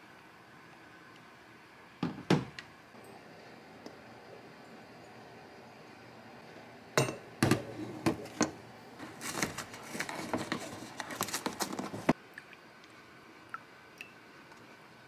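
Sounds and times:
paper carton clicks and rustles: 9.0s - 12.2s.

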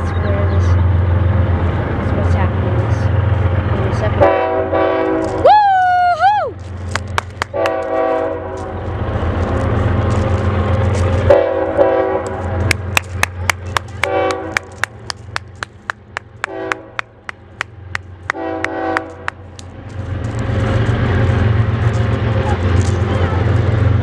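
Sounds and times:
train rumbling: 0.0s - 24.0s
locomotive air horn blasts: 4.2s - 5.4s, 7.6s - 8.7s, 11.3s - 12.6s, 14.0s - 14.6s, 16.5s - 17.0s, 18.3s - 19.3s.

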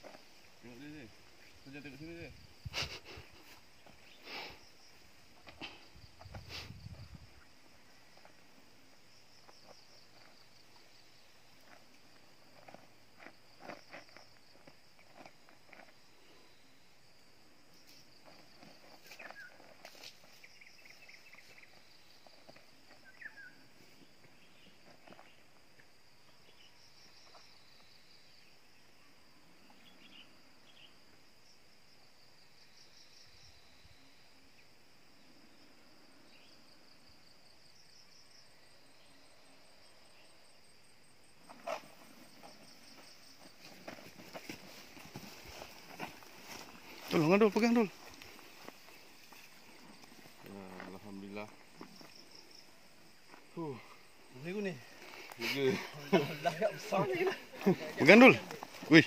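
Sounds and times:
steady high hiss: 0.0s - 13.6s
insects chirping: 0.0s - 59.0s.

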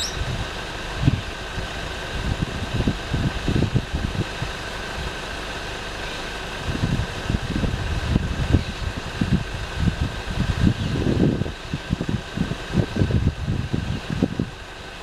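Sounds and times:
wind buffeting microphone: 6.6s - 14.6s.

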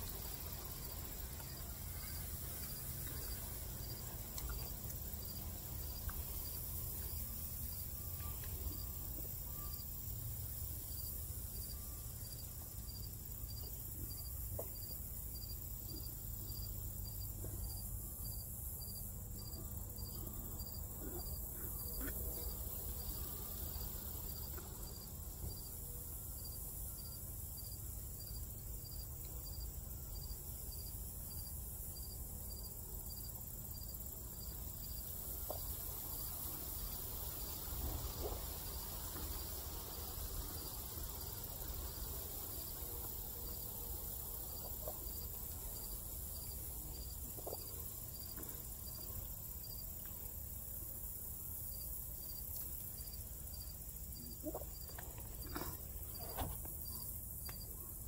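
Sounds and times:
cricket chirping: 0.0s - 58.0s.

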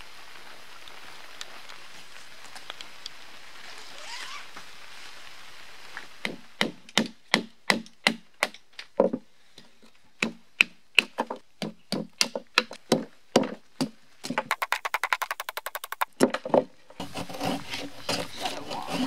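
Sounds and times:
steady rain: 0.0s - 7.6s.

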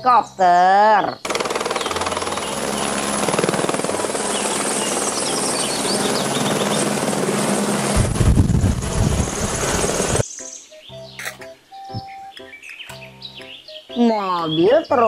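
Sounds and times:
helicopter rotor chopping: 1.2s - 10.2s
turbine whine: 1.3s - 10.2s.

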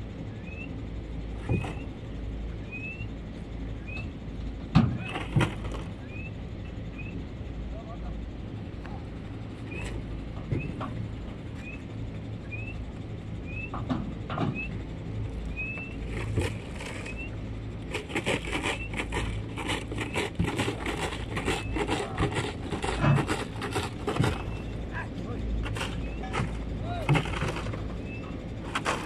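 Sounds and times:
low steady rumble: 0.0s - 29.0s
cattle hooves clattering on ramp: 17.9s - 24.9s, 25.6s - 29.0s.

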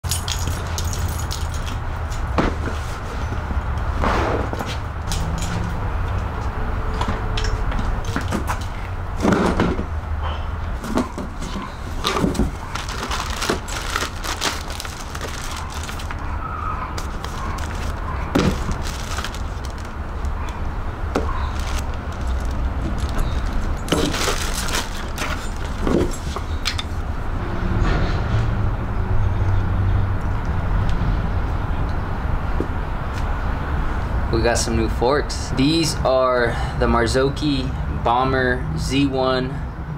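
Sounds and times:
cardboard and plastic rustling: 10.8s - 16.3s, 16.9s - 20.4s, 21.0s - 26.6s.

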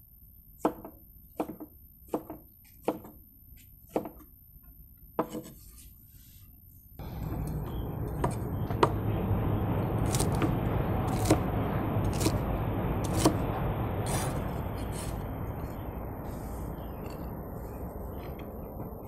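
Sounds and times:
low rushing noise: 7.0s - 19.0s
cleaver chopping on wooden board: 10.0s - 11.4s, 12.1s - 12.4s, 13.0s - 13.4s.

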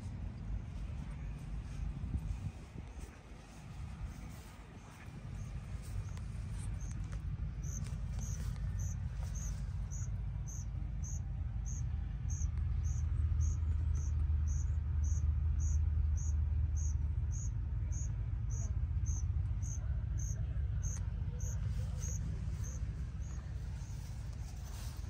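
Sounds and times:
low rumble: 0.0s - 25.0s
cricket chirping: 7.6s - 25.0s.

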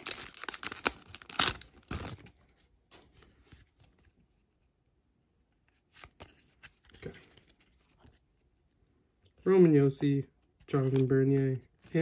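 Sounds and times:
foil wrapper tearing and crinkling: 0.0s - 2.3s
faint rustles of cards: 2.0s - 12.0s.

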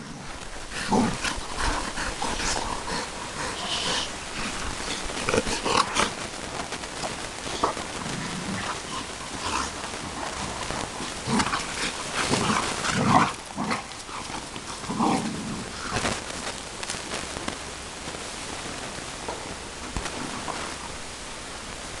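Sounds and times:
dogs growling: 0.0s - 6.2s, 7.5s - 16.2s.

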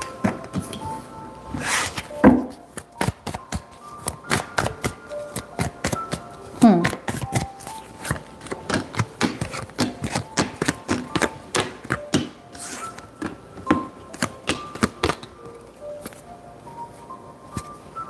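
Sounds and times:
cards shuffling and tapping: 1.8s - 16.2s.

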